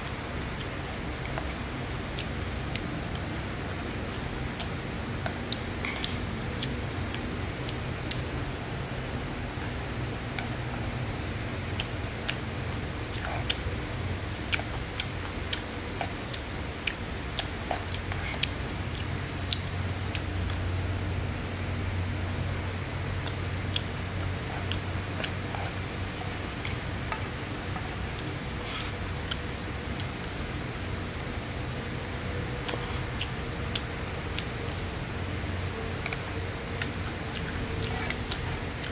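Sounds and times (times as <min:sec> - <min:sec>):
low steady hum: 0:00.0 - 0:38.9
metal spoon scraping frying pan: 0:28.6 - 0:29.0.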